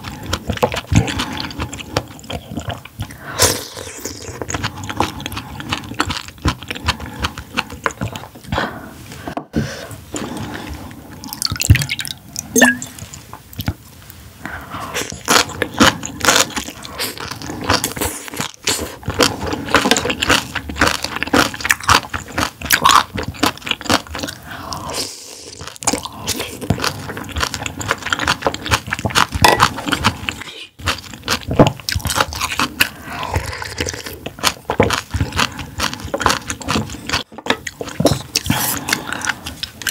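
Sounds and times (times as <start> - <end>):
food crunching: 0.0 - 8.5, 15.0 - 39.9
wet chewing and smacking: 0.0 - 8.6, 10.2 - 13.8, 15.0 - 39.9
liquid sounds: 10.1 - 13.8.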